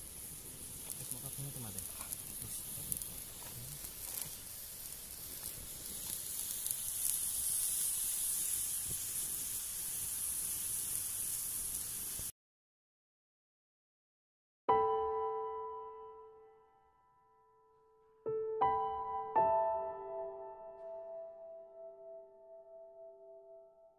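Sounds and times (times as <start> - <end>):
stew sizzling in a wok: 0.0 - 12.3.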